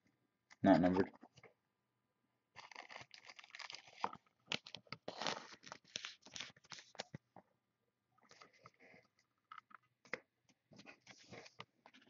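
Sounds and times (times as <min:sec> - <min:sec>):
cards rustling as flipped: 0:02.7 - 0:07.2.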